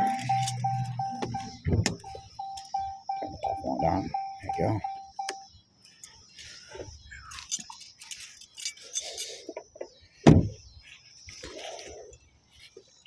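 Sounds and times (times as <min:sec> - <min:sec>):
car door shutting: 0:00.0 - 0:02.3.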